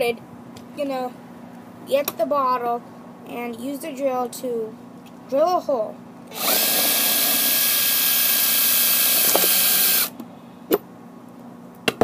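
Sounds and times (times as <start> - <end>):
cordless drill drilling plastic: 6.3 - 10.1.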